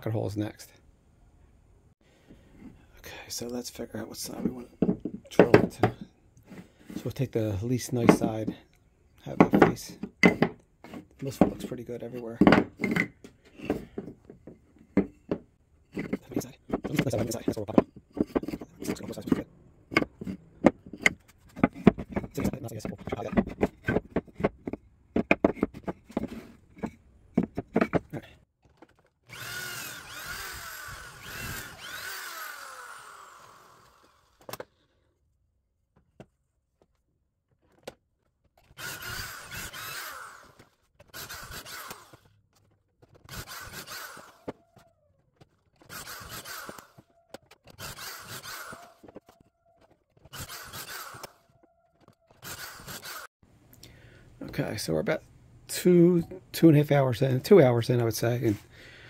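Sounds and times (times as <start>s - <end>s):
wood knocks and clicks: 4.4s - 6.1s, 9.4s - 11.7s, 12.3s - 29.1s
power drill boring wood: 29.2s - 34.4s, 38.7s - 42.3s, 43.2s - 44.9s, 45.8s - 51.6s, 52.3s - 53.3s.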